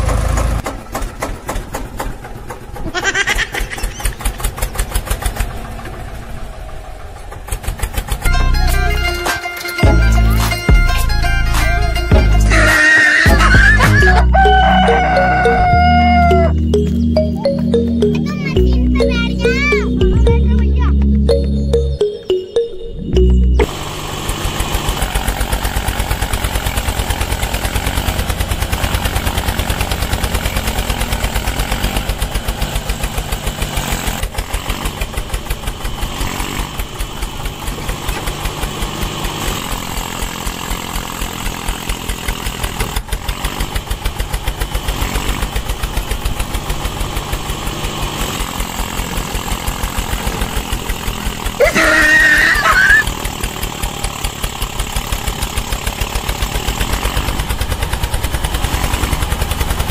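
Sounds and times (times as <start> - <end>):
small engine running: 0.0 - 20.7, 23.2 - 59.9
high-pitched wavering sound: 14.2 - 24.1.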